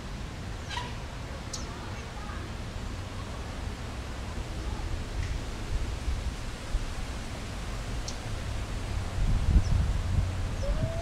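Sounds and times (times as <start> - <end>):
wind buffeting microphone: 4.5 - 11.0.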